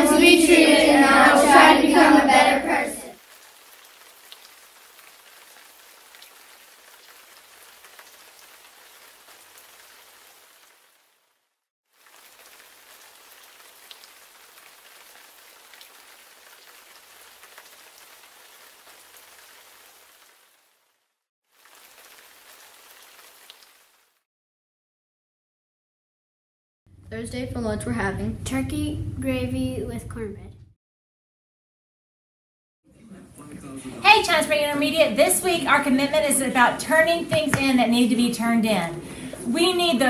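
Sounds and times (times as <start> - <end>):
steady rain hiss: 0.0 - 24.2, 32.9 - 40.0
raindrop ticks: 3.2 - 9.9, 12.0 - 18.0.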